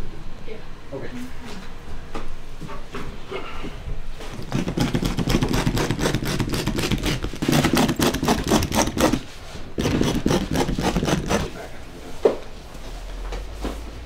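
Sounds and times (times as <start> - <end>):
carpet being torn up: 4.3 - 9.2.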